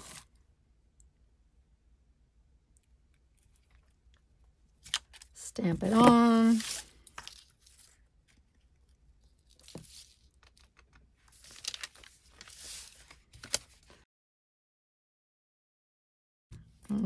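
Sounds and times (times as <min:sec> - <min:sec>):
paper and plastic sheet rustling: 0:00.0 - 0:00.3, 0:04.9 - 0:08.0, 0:09.4 - 0:14.0.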